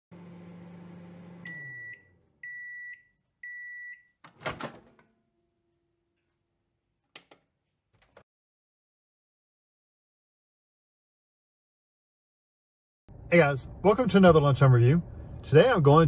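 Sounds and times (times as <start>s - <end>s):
microwave oven humming: 0.1s - 2.8s
door latch clunk: 4.3s - 5.0s.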